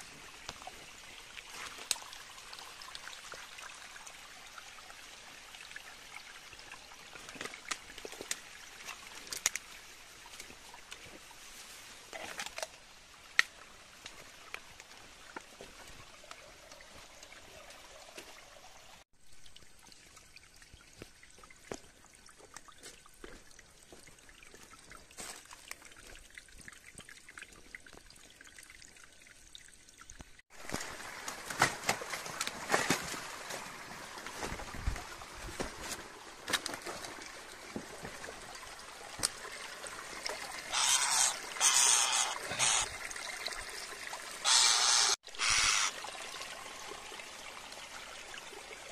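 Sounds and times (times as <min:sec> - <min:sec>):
water trickling and splashing: 0:00.0 - 0:48.9.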